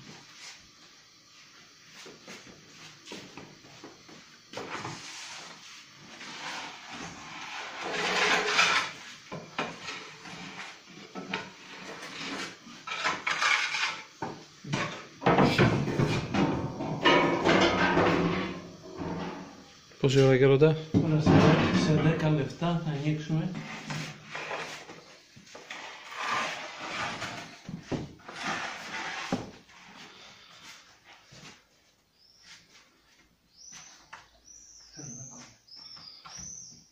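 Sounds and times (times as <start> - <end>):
metal trays scraping oven floor: 6.1 - 14.1, 14.7 - 20.2, 21.1 - 30.0.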